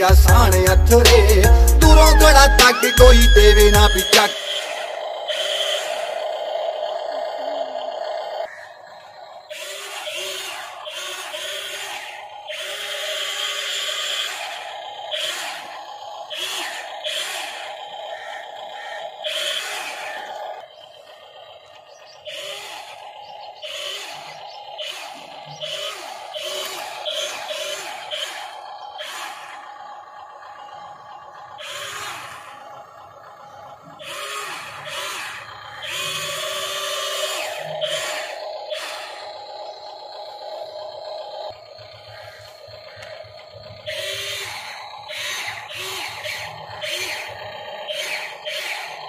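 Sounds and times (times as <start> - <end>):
small electric motors whirring: 34.0 - 40.0, 42.1 - 49.0.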